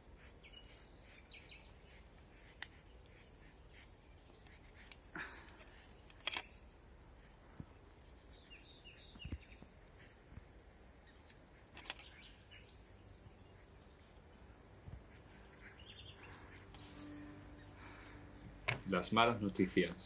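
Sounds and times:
small birds chirping: 0:00.0 - 0:20.0
sharp clicks: 0:04.5 - 0:06.6, 0:11.2 - 0:12.2.

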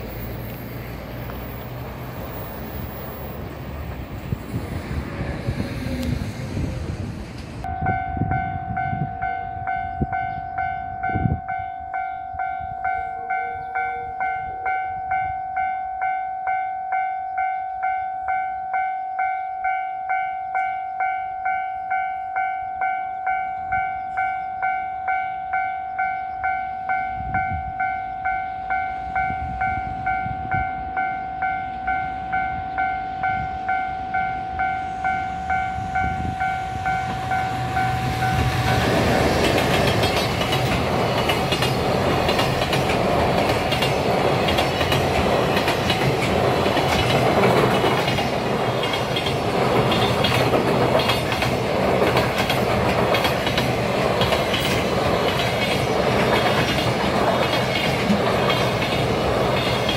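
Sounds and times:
level-crossing alarm dinging: 0:07.6 - 0:39.5.

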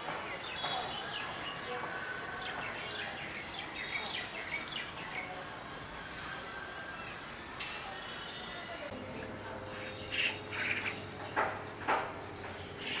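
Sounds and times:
birds chirping: 0:06.9 - 0:13.0.

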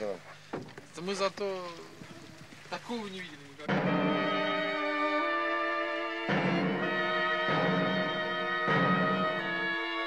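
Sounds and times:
slow orchestral music: 0:03.6 - 0:10.0.

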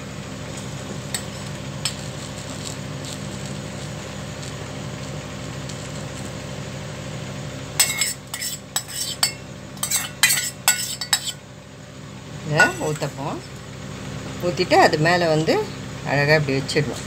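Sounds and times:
steady low hum: 0:00.0 - 0:17.0
metal spoon scraping griddle: 0:01.1 - 0:04.0, 0:07.8 - 0:11.4.

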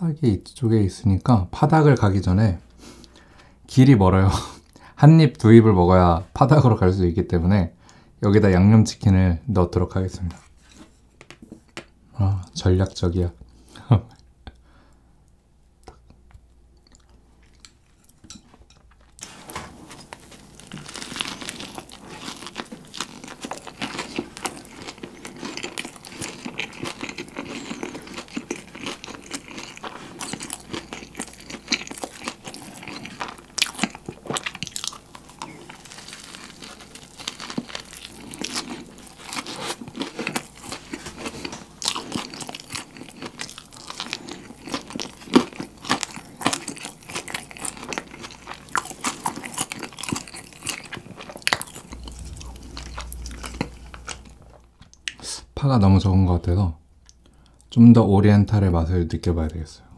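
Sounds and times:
crisp crunchy chewing: 0:18.9 - 0:55.2.

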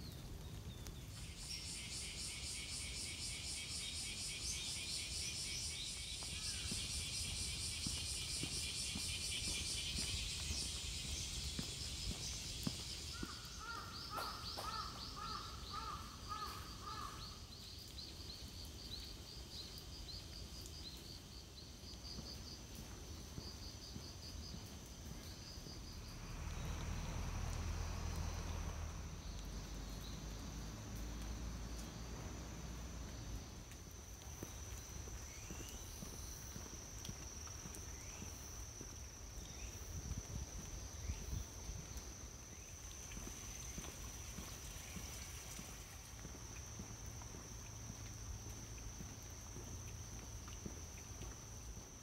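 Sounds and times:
high insect drone: 0:01.2 - 0:52.0
crow cawing: 0:13.6 - 0:17.2.

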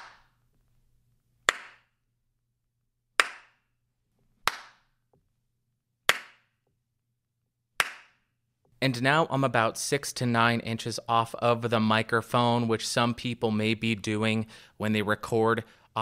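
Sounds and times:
hand claps with room reverb: 0:00.0 - 0:00.4, 0:01.5 - 0:02.0, 0:03.2 - 0:03.7, 0:04.4 - 0:05.0, 0:06.1 - 0:06.6, 0:07.8 - 0:08.3.

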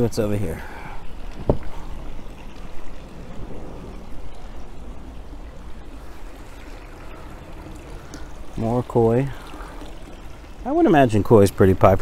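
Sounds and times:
running water rushing: 0:00.0 - 0:12.0
soft thump: 0:01.4 - 0:01.7.

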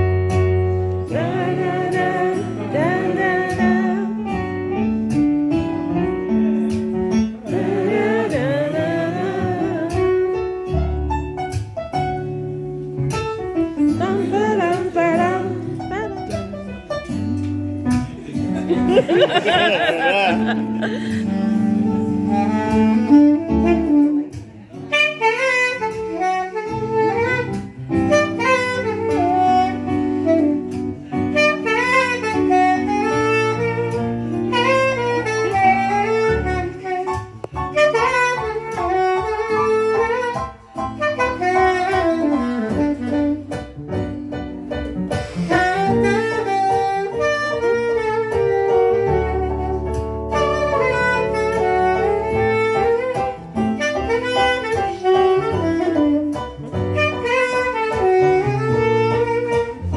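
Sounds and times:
low bass notes: 0:00.0 - 0:11.4
electric keyboard chords: 0:00.0 - 0:59.9
saxophone melody: 0:00.0 - 0:59.9.

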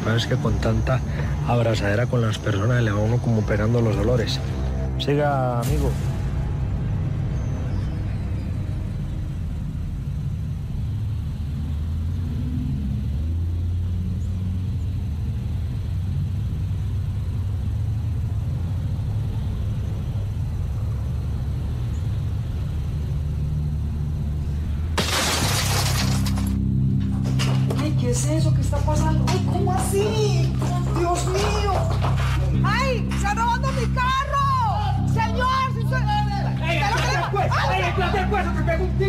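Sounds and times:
car engine idling: 0:08.9 - 0:25.0
glass breaking crash: 0:25.0 - 0:26.6.

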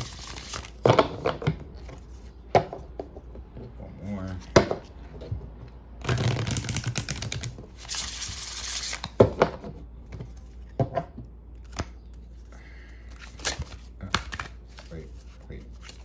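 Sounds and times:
cards being shuffled: 0:00.0 - 0:00.9, 0:06.0 - 0:09.2, 0:13.1 - 0:16.0.

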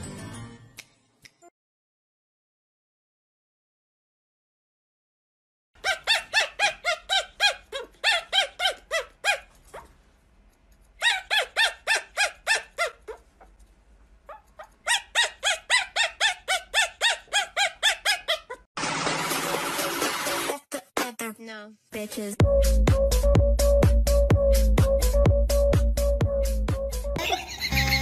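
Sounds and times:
puppy yapping: 0:05.8 - 0:10.0, 0:11.0 - 0:13.5, 0:14.3 - 0:18.6.

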